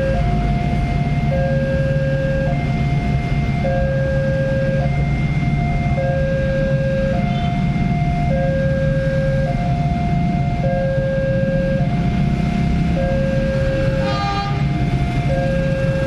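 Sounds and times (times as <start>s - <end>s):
short horn: 14.0s - 14.7s.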